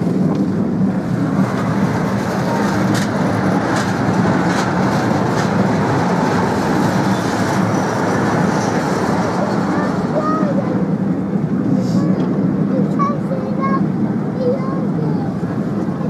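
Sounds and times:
train wheels rumbling on rail: 0:00.0 - 0:16.0
sharp rail clicks: 0:01.4 - 0:09.4.

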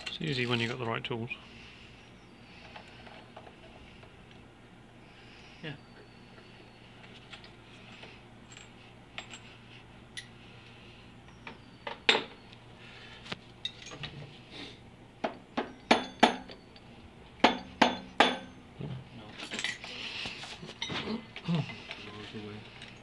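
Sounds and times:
metal tools clinking: 0:00.0 - 0:01.0, 0:05.9 - 0:10.4, 0:13.6 - 0:14.2, 0:19.2 - 0:23.0.

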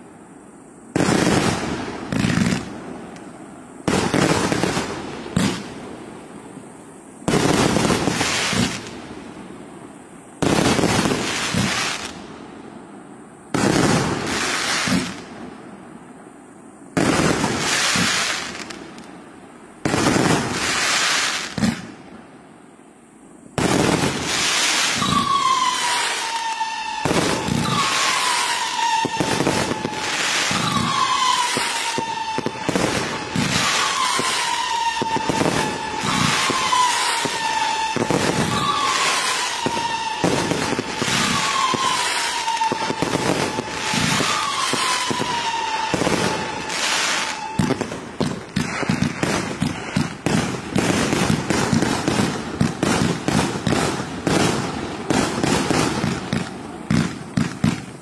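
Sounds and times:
fireworks shots and crackle: 0:00.9 - 0:09.6, 0:10.4 - 0:12.5, 0:13.5 - 0:15.8, 0:16.9 - 0:19.2, 0:19.8 - 0:22.2, 0:23.5 - 0:58.0
shrill firework whistle: 0:13.6 - 0:15.2, 0:17.0 - 0:18.8, 0:23.6 - 0:54.8.

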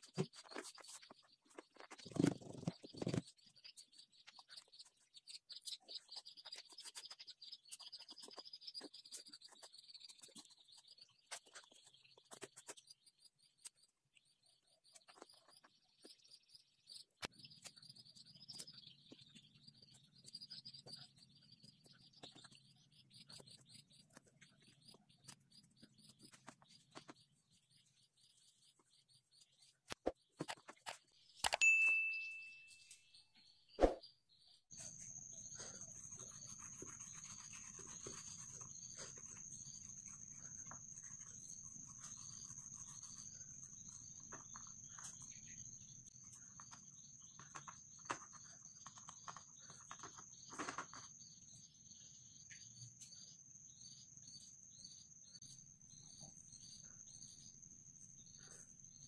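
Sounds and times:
small bird chirping: 0:00.0 - 0:59.0
hands rolling dough on a board: 0:34.7 - 0:51.4.

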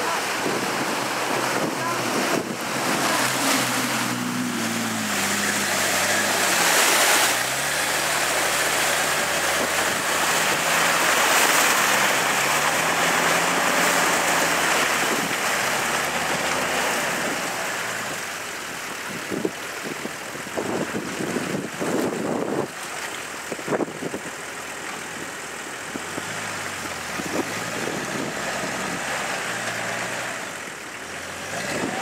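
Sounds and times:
dense steady rushing noise: 0:00.0 - 0:19.7
off-road vehicle engine under load: 0:00.0 - 0:32.0.

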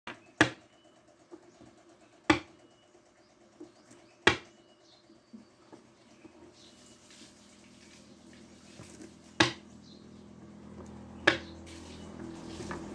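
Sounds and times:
sharp knocks on wooden board: 0:00.1 - 0:00.6, 0:02.3 - 0:02.5, 0:04.2 - 0:04.5, 0:09.4 - 0:09.6, 0:11.2 - 0:11.5.

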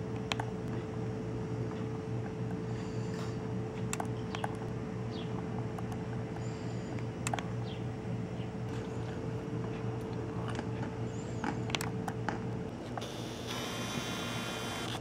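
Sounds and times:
steady low hum: 0:00.0 - 0:15.0
scattered clicks: 0:00.1 - 0:00.9, 0:01.7 - 0:07.5
camera zoom motor whirring: 0:12.8 - 0:15.0.

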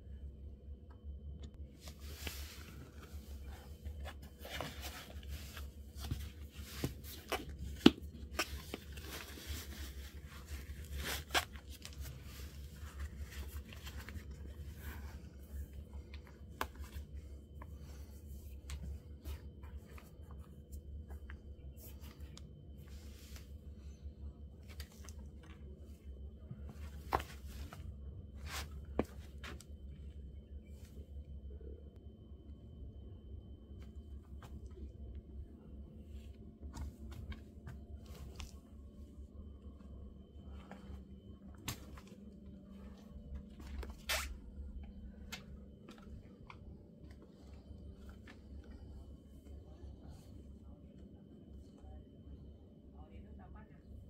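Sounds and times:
steady low hum: 0:00.0 - 0:54.0
shoelaces rustling: 0:01.8 - 0:17.7, 0:26.6 - 0:29.7.

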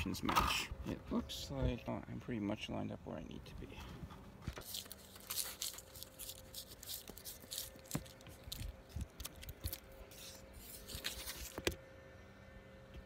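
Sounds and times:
faint steady hum: 0:00.0 - 0:13.0
rustling and crinkling: 0:03.8 - 0:11.8.

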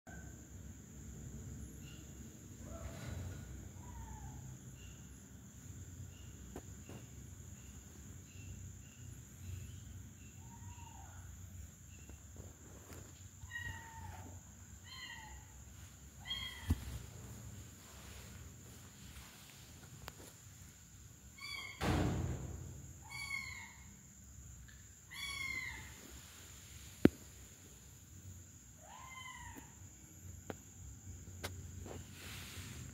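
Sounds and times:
faint regular chirping: 0:01.3 - 0:21.8
kittens meowing: 0:13.4 - 0:15.6, 0:16.2 - 0:16.9, 0:25.1 - 0:26.0, 0:28.8 - 0:29.8.

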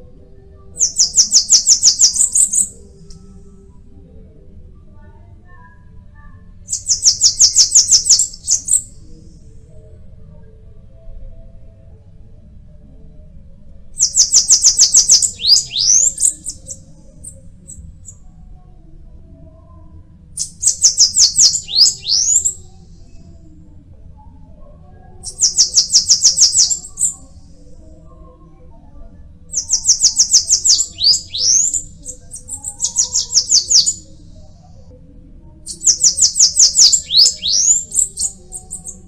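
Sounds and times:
bird singing high notes: 0:14.0 - 0:16.6, 0:20.6 - 0:22.6, 0:29.6 - 0:34.0, 0:35.8 - 0:38.3.

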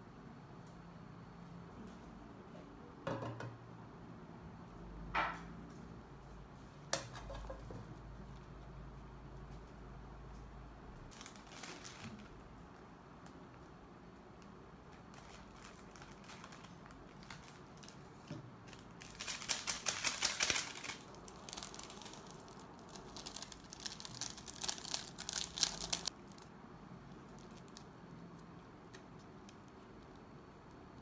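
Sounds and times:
plastic sachets crinkling and tearing: 0:11.1 - 0:13.4, 0:14.8 - 0:26.5, 0:27.1 - 0:28.1.

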